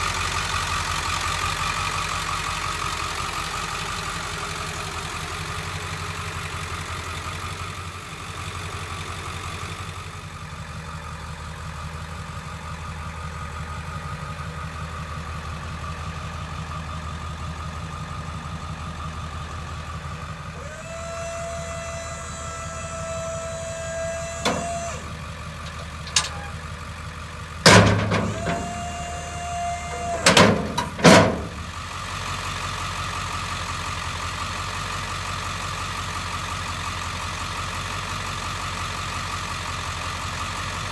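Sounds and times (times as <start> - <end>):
diesel engine idling: 0.0 - 40.9
steady whine: 20.6 - 26.6
loud metal clanks: 24.4 - 25.0, 25.6 - 26.6, 27.6 - 28.7, 30.1 - 31.7.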